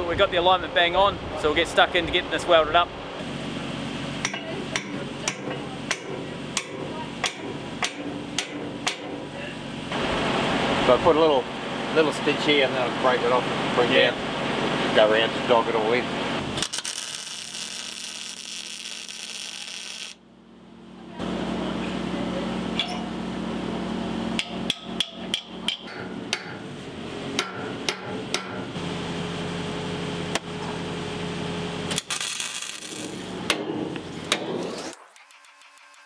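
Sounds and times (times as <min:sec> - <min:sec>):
steady background hum: 0:00.0 - 0:35.9
hammer striking metal: 0:04.2 - 0:09.3, 0:22.8 - 0:23.1, 0:24.4 - 0:26.6, 0:27.4 - 0:28.7.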